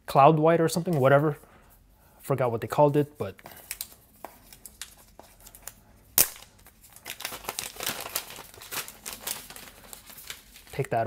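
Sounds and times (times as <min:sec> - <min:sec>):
plastic wrap crinkling: 0:03.5 - 0:11.0.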